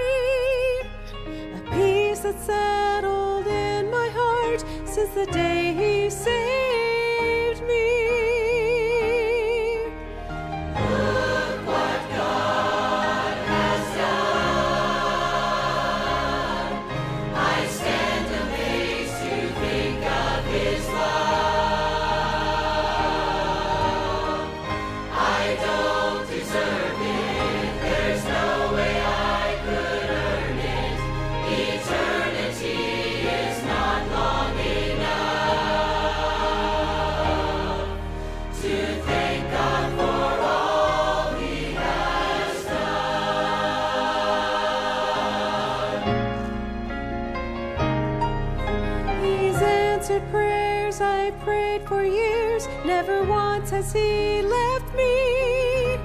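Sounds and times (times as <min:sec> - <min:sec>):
church choir singing gospel: 0:10.0 - 0:53.2.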